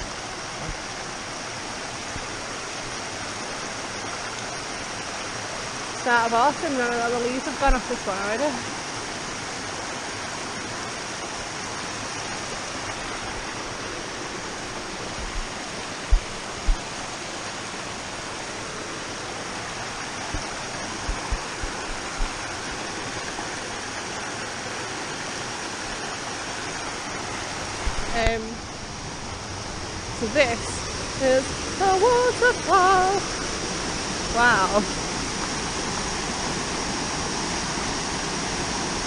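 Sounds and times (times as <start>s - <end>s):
waterfall and stream rushing: 0.0s - 39.0s
short low thumps: 15.2s - 16.9s, 20.3s - 22.4s.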